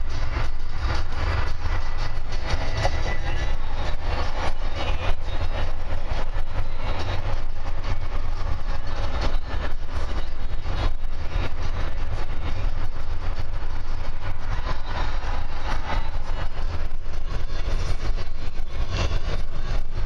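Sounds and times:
engine and road rumble: 0:00.0 - 0:20.0.

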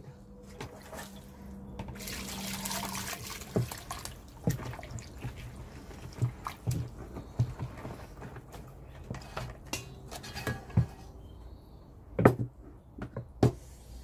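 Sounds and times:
water poured into plastic bucket: 0:02.0 - 0:06.8.

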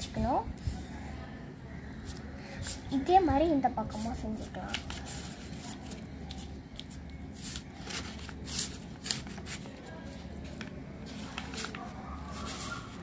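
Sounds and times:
paper being folded and creased: 0:03.9 - 0:13.0.

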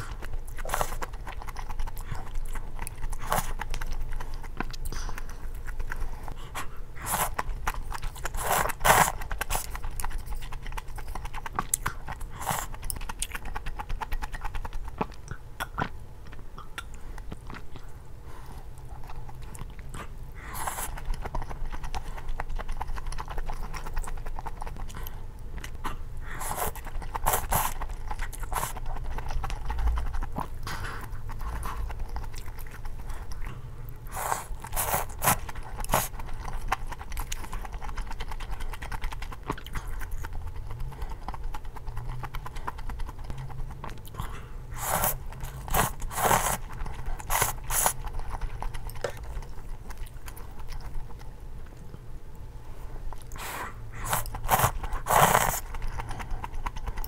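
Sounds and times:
wet chewing: 0:00.0 - 0:52.4, 0:53.0 - 0:57.0
noodles slurped: 0:25.9 - 0:51.0, 0:53.2 - 0:57.0.

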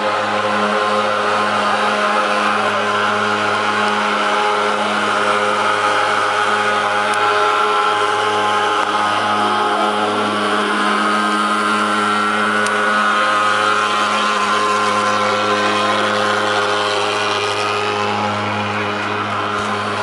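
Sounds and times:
fogging machine engine drone: 0:00.0 - 0:20.0.

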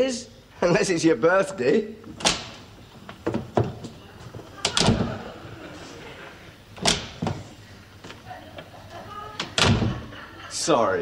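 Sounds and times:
door opening and shutting: 0:02.1 - 0:05.4, 0:06.7 - 0:07.6, 0:09.3 - 0:10.1.

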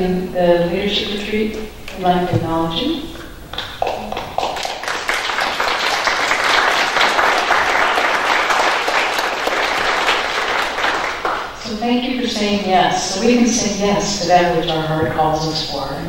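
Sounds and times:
crowd applauding: 0:03.5 - 0:11.6.

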